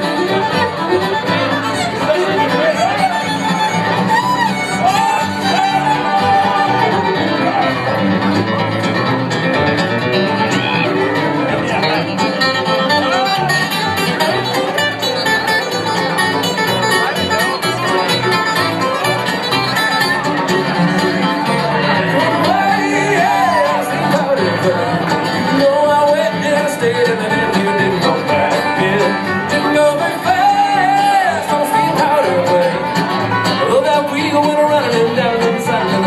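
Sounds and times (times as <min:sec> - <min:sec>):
acoustic guitar: 0:00.0 - 0:36.0
fiddle: 0:00.0 - 0:36.0
upright bass: 0:00.0 - 0:36.0
person singing: 0:04.3 - 0:07.8, 0:21.5 - 0:36.0.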